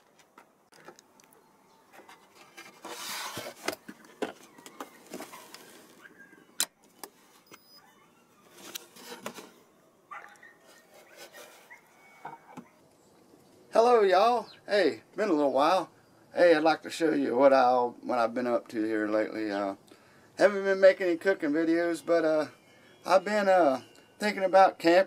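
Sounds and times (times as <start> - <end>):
rustling: 0.0 - 13.6.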